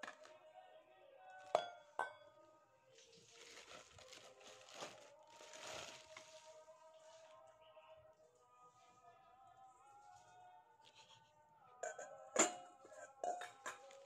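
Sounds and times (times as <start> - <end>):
plastic film crinkling: 3.0 - 6.7.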